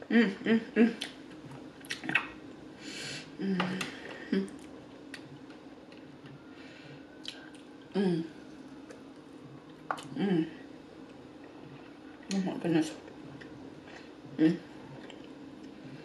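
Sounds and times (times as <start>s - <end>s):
person humming mm: 3.2s - 4.6s, 7.9s - 8.4s
chewing and squishing: 14.8s - 15.8s.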